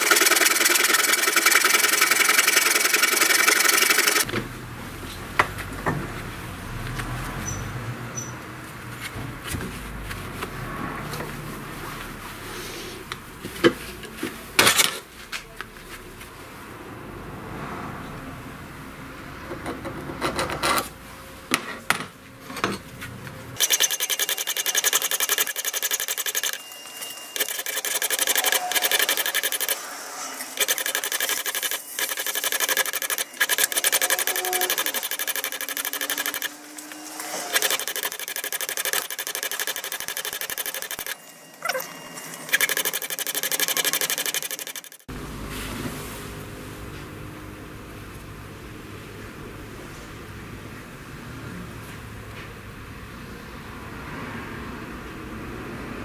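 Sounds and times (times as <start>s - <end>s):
belt grinder grinding brass: 0.0s - 4.3s, 23.6s - 45.0s
steel caliper clicking and scraping: 23.6s - 26.6s, 27.3s - 29.8s, 30.6s - 41.2s.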